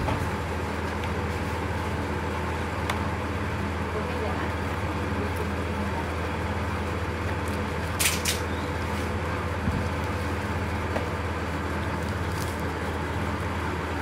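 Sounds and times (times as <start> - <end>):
steady low hum: 0.0 - 14.0
cardboard and plastic rustling: 11.9 - 12.9.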